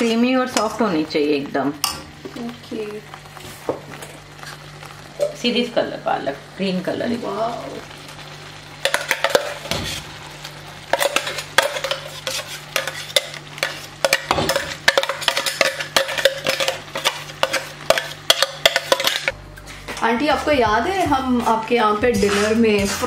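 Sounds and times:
gravy simmering: 0.0 - 19.4
spoon clinking and scraping pan: 8.8 - 9.8, 10.9 - 19.3.

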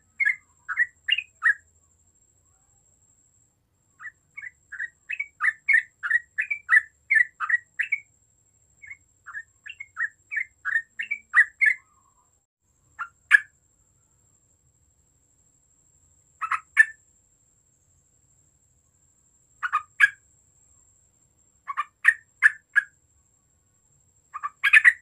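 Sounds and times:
bulbul chirping: 0.1 - 1.6, 4.0 - 8.1, 8.8 - 12.0, 16.4 - 17.0, 19.6 - 20.2, 21.7 - 22.9, 24.3 - 25.0.

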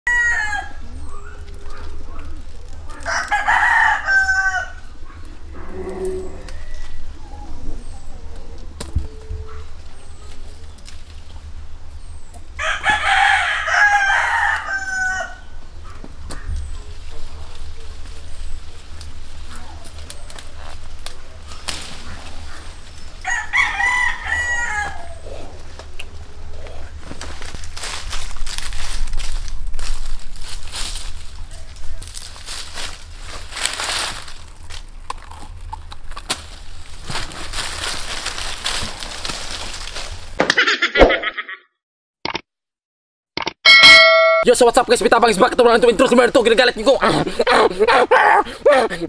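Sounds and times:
rooster crowing: 0.1 - 0.9, 2.9 - 5.0, 12.6 - 15.6, 23.2 - 25.2.

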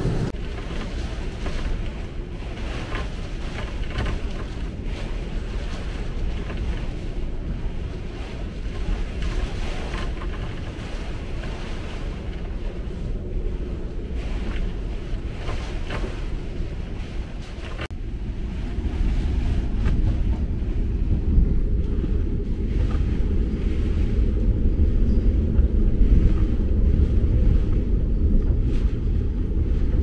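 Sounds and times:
rain hitting boat canopy: 0.0 - 23.2
strong wind rushing: 0.0 - 30.0.

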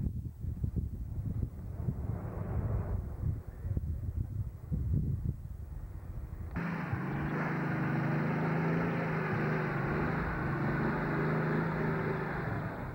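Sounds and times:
wind rumble on microphone: 0.0 - 7.5
engine running under load: 6.5 - 12.9.

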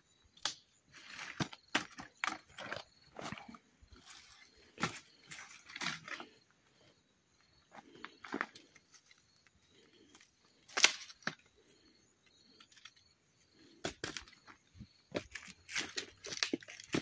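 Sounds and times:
twigs crackling and snapping: 0.4 - 2.8, 10.7 - 11.5, 15.1 - 17.0.

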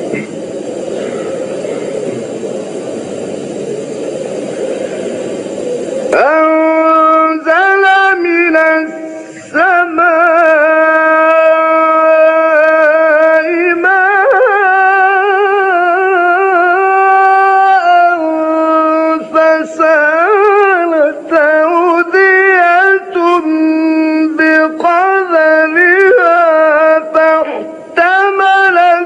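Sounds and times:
man chanting melodically: 6.0 - 29.0.

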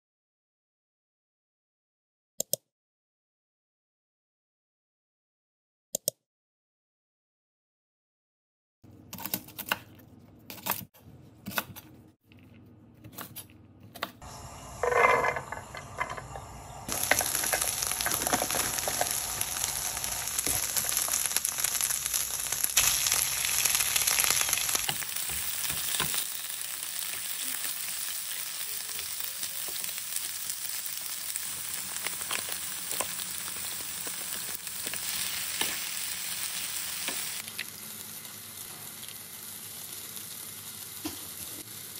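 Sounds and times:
garlic sizzling in frying pan: 14.3 - 41.9.

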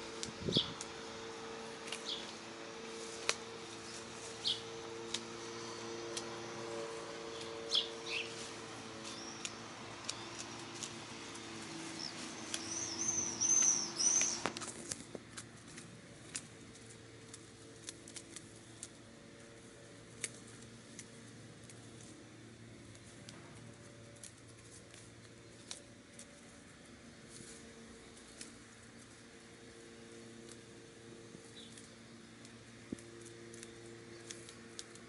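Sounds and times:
low steady hum: 0.0 - 35.0
birds chirping: 0.4 - 14.8, 31.4 - 32.4.

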